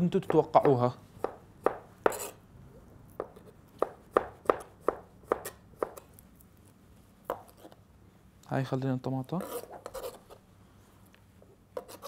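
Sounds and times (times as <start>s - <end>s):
knife tapping cutting board: 0.2s - 2.2s.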